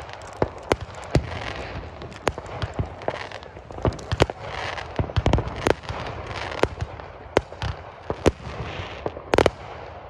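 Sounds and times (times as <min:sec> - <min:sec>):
fireworks bangs: 0:00.0 - 0:10.0
fireworks crackling hiss: 0:00.0 - 0:10.0.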